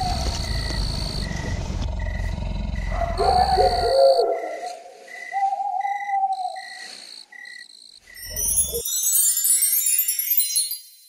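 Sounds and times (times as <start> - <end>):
cricket-like chirps: 0.0 - 8.9
shimmering chime of sliding notes: 8.2 - 11.0.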